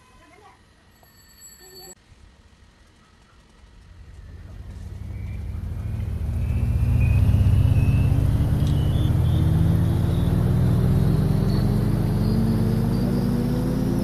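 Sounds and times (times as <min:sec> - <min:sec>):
faint rising whine: 0:02.1 - 0:14.0
vehicle engine approaching: 0:03.6 - 0:14.0.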